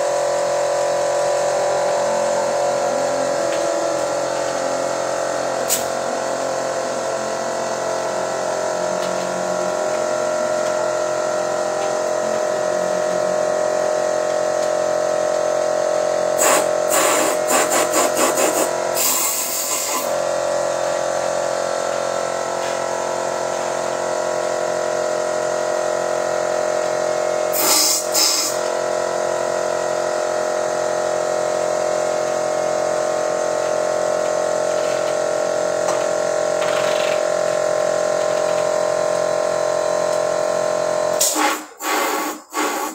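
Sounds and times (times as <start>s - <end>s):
machine whine: 0.0s - 42.9s
air hose hissing blasts: 16.4s - 20.1s, 27.5s - 28.6s, 41.2s - 42.9s.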